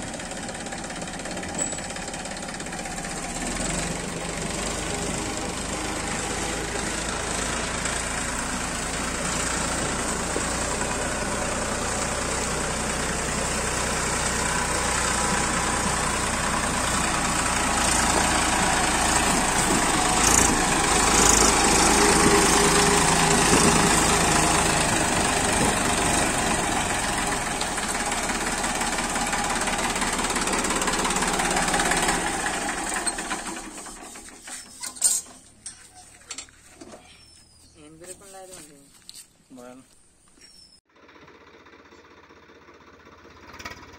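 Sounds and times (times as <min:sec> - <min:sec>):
tractor engine running: 0:00.0 - 0:38.8, 0:40.9 - 0:43.9.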